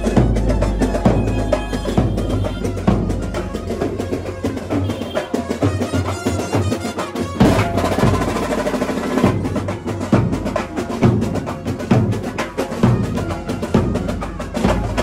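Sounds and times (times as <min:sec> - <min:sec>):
saxophone melody: 0:00.0 - 0:08.3
drums and percussion beating: 0:00.0 - 0:15.0.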